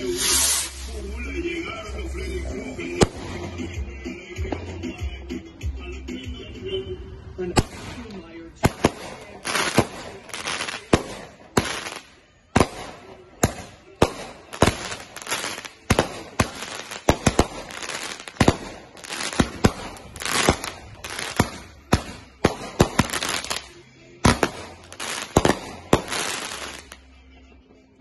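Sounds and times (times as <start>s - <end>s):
fireworks bangs: 0.0s - 1.1s, 7.6s - 27.0s
fireworks crackling: 0.0s - 3.8s, 7.6s - 27.1s.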